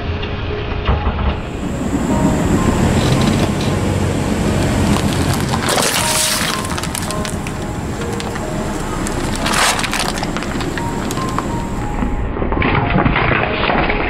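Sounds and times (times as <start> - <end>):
background music: 0.0 - 12.7
plastic bottle cracking and bursting: 4.6 - 11.8.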